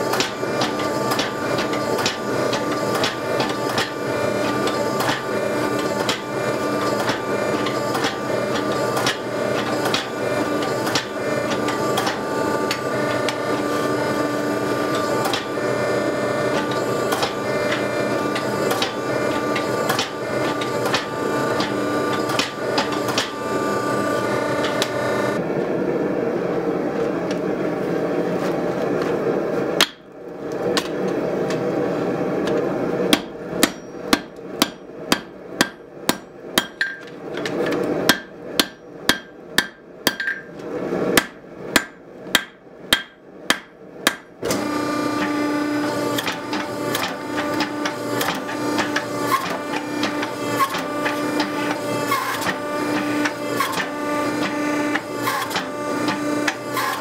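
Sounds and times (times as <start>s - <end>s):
hydraulic pump drone: 0.0s - 39.1s, 44.4s - 57.0s
hammer ringing on anvil: 33.6s - 37.1s.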